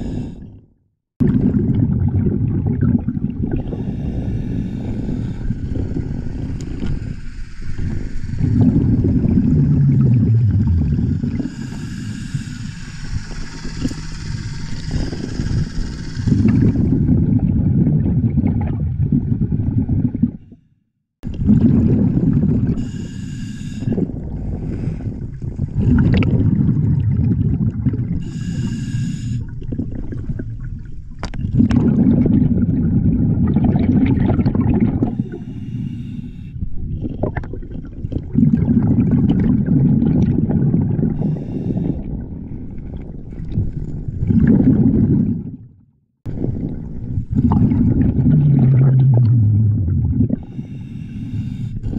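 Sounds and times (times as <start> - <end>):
underwater exhalation bubbling: 0.0 - 20.6, 21.2 - 35.8, 36.7 - 45.7, 46.3 - 51.9
regulator inhalation hiss: 3.8 - 8.4, 11.4 - 16.4, 22.8 - 24.0, 28.2 - 29.4, 35.2 - 36.6, 41.2 - 42.0, 50.4 - 51.9.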